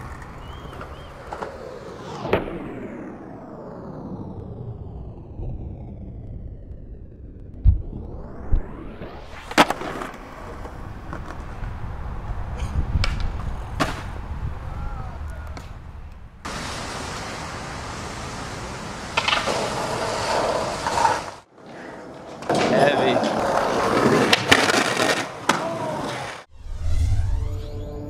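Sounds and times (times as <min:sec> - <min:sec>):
skateboard wheels rolling: 0:00.0 - 0:03.1, 0:08.2 - 0:26.5
skateboard thump: 0:13.0 - 0:14.2, 0:19.2 - 0:20.0
steady hiss: 0:16.4 - 0:21.4
skateboard clacking on ground: 0:19.1 - 0:21.4, 0:22.0 - 0:26.2.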